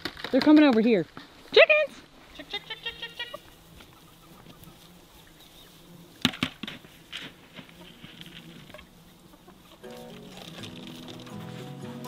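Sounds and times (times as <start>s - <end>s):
chickens clucking: 2.2s - 6.4s, 7.4s - 12.0s
background music: 9.8s - 12.0s.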